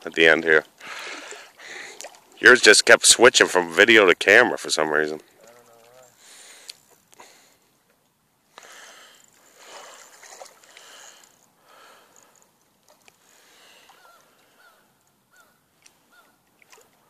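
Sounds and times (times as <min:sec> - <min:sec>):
shallow water sloshing: 0:00.0 - 0:02.7, 0:08.6 - 0:17.0.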